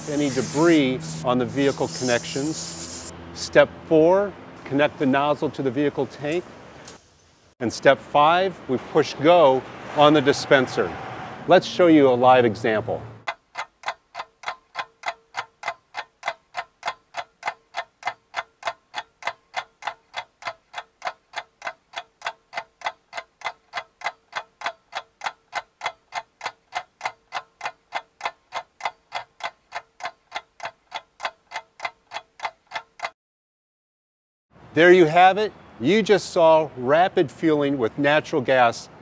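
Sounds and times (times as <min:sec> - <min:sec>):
clock ticking: 0:13.2 - 0:33.2.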